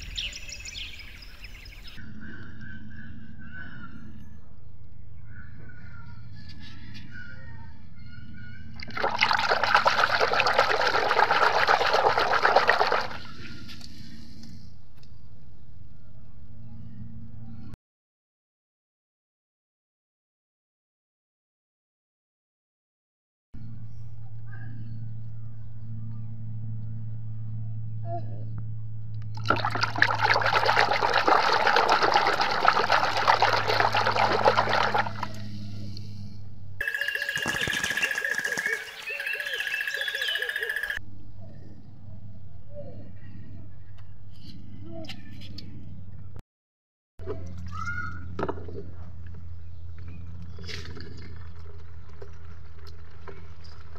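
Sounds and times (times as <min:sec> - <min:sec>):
hand splashing in soapy water: 0:08.8 - 0:13.3, 0:29.4 - 0:35.3
faint low hum: 0:23.6 - 0:36.8.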